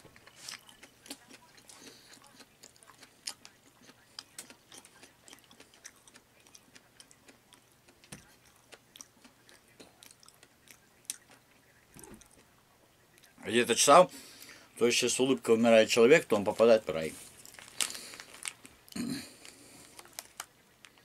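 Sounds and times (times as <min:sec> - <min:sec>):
person chewing food: 0:00.0 - 0:12.5, 0:17.2 - 0:21.0.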